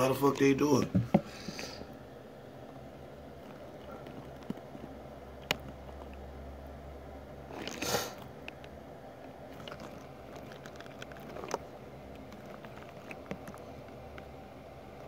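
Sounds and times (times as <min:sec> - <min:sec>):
low steady hum: 0:00.0 - 0:15.0
small clicks and ticks: 0:03.4 - 0:06.3, 0:08.2 - 0:15.0.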